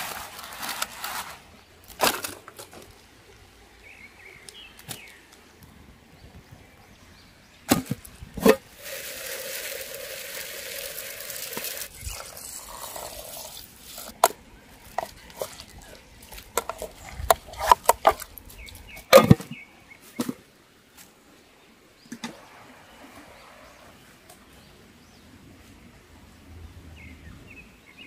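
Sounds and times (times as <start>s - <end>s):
tissue paper crumpling: 0.0s - 1.4s
sharp cracks and knocks: 7.7s - 8.6s
water pouring into metal tin: 8.4s - 17.1s.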